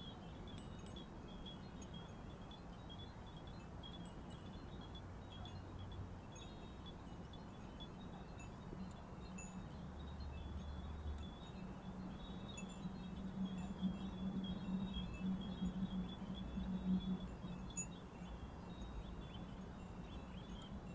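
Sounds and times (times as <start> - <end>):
wind bells tinkling: 0.0 - 20.9
low steady rumble: 4.9 - 20.9.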